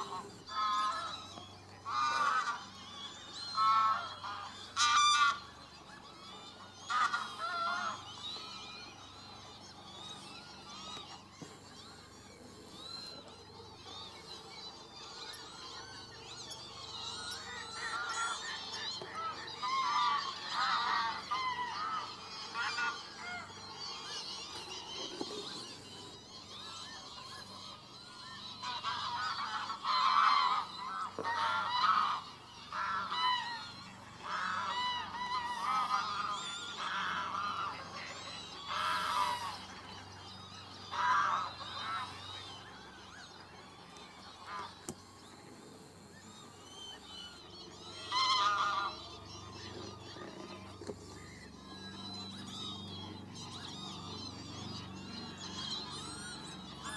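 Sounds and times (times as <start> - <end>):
geese honking: 0.0 - 5.6, 6.6 - 8.1, 17.3 - 27.1, 27.7 - 51.5.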